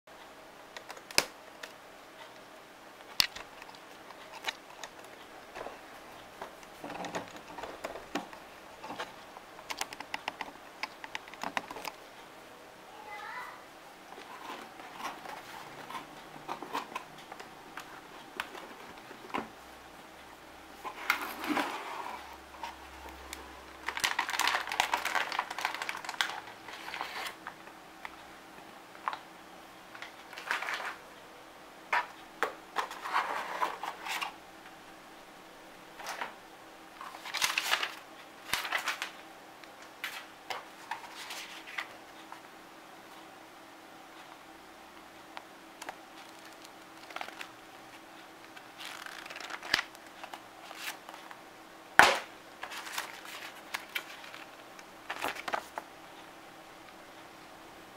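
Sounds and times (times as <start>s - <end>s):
plastic and paper rustling: 6.4s - 12.0s, 14.2s - 19.5s, 20.8s - 27.6s, 30.0s - 31.0s, 32.8s - 34.4s, 37.0s - 39.2s, 40.0s - 42.0s, 45.8s - 47.6s, 48.4s - 51.4s, 52.0s - 55.9s.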